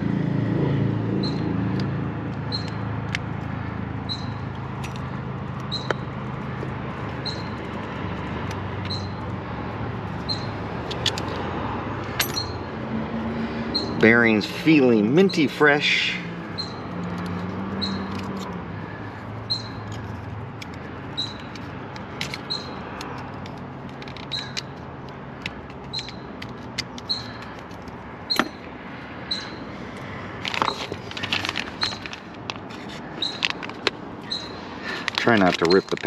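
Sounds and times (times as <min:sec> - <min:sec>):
metal parts and screwdriver clicking: 0:04.2 - 0:09.1, 0:10.1 - 0:11.4, 0:12.0 - 0:12.7, 0:16.4 - 0:28.7, 0:29.3 - 0:36.0.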